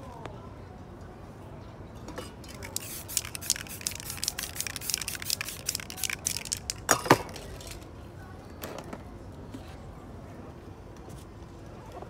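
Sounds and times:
spray paint can bursts: 0:02.5 - 0:07.8.

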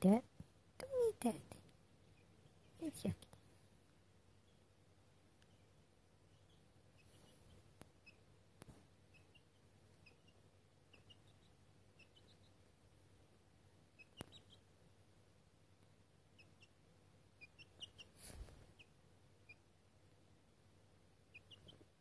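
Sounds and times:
chicks peeping: 0:04.2 - 0:13.2, 0:13.8 - 0:14.8, 0:16.2 - 0:19.8, 0:21.2 - 0:22.0.

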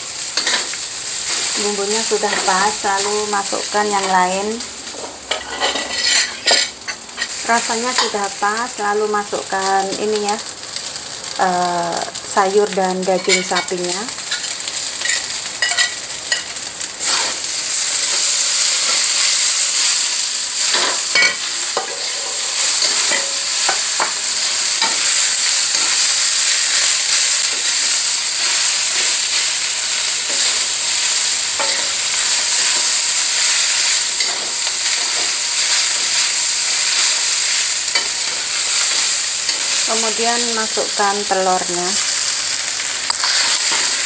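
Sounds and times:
food sizzling in wok: 0:00.0 - 0:44.0
metal spatula scraping wok: 0:05.3 - 0:07.4, 0:43.1 - 0:44.0.

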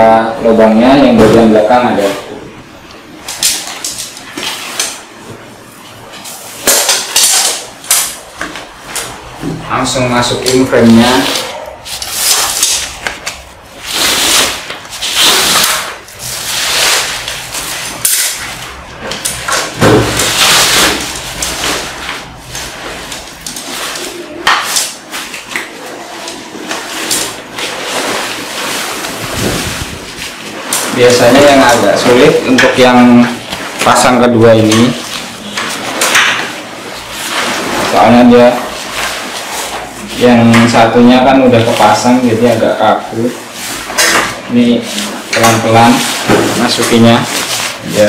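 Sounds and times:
tent fabric rustling and crinkling: 0:26.1 - 0:31.8, 0:35.0 - 0:39.9
tent fabric rustling: 0:26.6 - 0:31.2.

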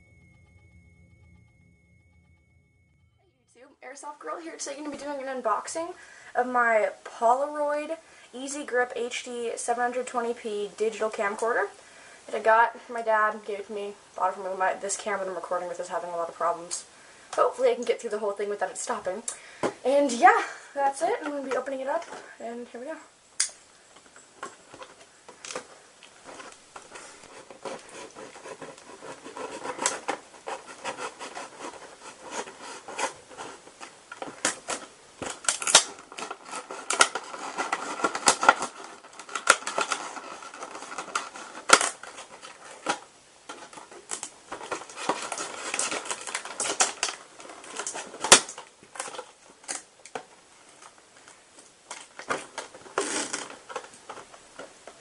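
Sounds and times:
plastic and cardboard crackling: 0:17.4 - 0:55.0
sharp plastic snaps: 0:23.4 - 0:26.6, 0:34.2 - 0:50.3.

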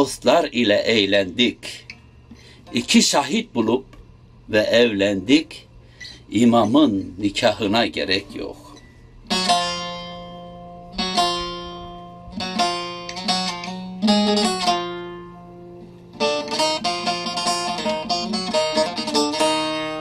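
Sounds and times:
plucked string instrument strumming: 0:08.1 - 0:20.0.

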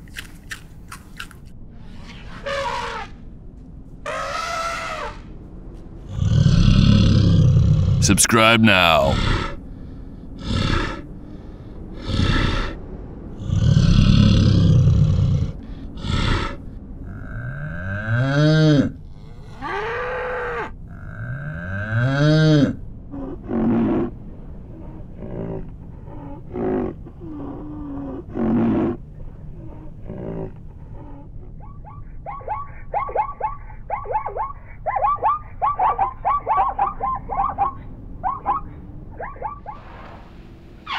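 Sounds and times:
bear growling and roaring: 0:06.1 - 0:08.5, 0:10.4 - 0:11.1, 0:12.0 - 0:31.5.

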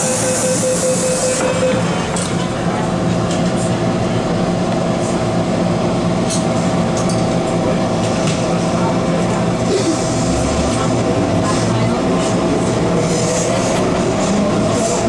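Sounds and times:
train moving off: 0:00.0 - 0:06.7, 0:07.3 - 0:15.0
train electrical hum: 0:00.0 - 0:15.0.

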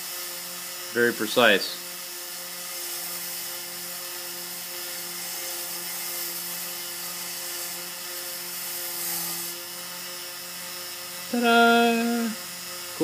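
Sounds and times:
router spindle high-speed whine: 0:00.0 - 0:13.0.

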